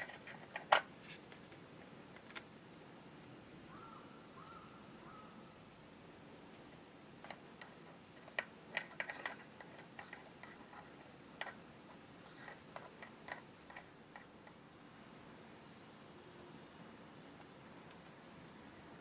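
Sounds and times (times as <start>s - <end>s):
plastic toy pieces clicking: 0.0s - 0.9s, 7.2s - 11.6s, 12.2s - 14.6s.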